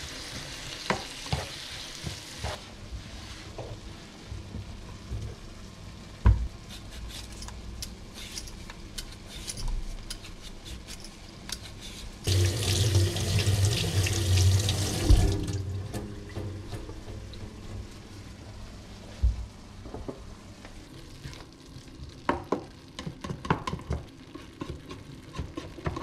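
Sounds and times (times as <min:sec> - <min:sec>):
tap running into sink: 0:12.3 - 0:15.6.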